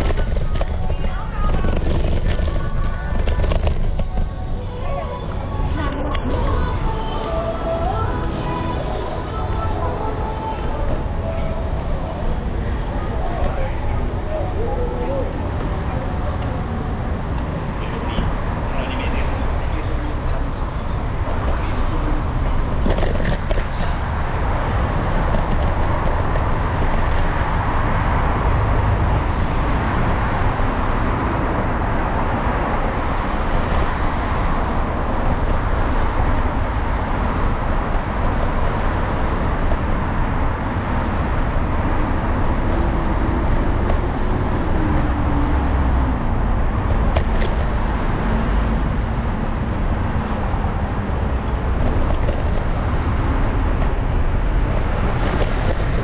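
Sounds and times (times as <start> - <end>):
cars driving on wet road: 0.0 - 56.0.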